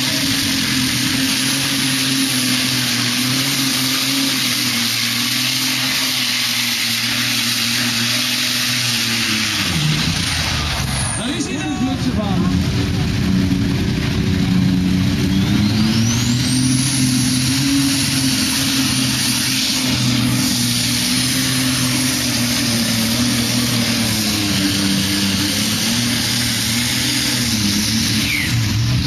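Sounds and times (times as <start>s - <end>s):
tractor engine at full throttle: 0.0s - 29.0s
high whine: 9.1s - 29.0s.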